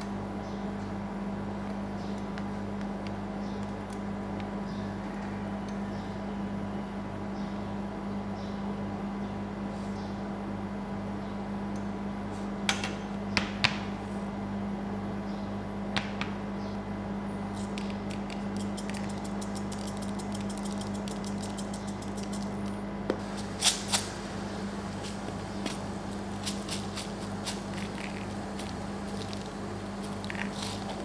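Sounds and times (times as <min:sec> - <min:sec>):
refrigeration unit hum: 0:00.0 - 0:31.0
sprinkles shaken from shaker: 0:18.0 - 0:22.6.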